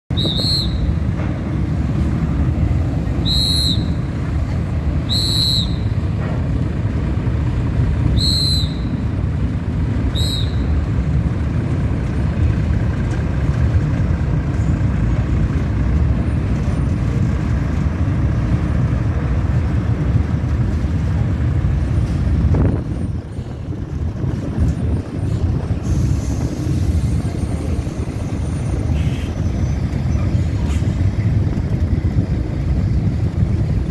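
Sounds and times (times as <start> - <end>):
short high whistle tones: 0.1 - 1.0, 3.2 - 4.2, 5.0 - 6.0, 8.1 - 9.0, 10.1 - 10.8
lorry diesel engine rumbling: 0.1 - 33.9.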